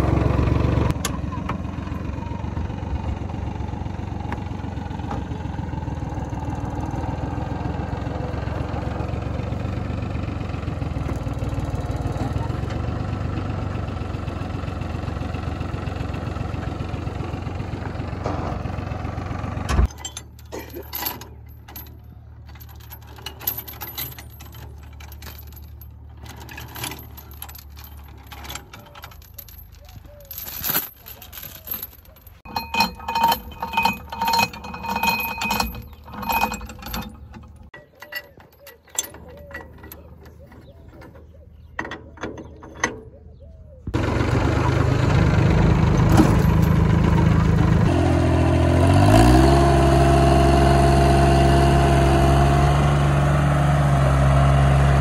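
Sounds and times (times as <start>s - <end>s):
tractor engine running: 0.0s - 55.0s
clinks and rattles: 19.8s - 43.3s, 45.9s - 47.7s
voices: 28.3s - 32.4s, 37.8s - 43.9s.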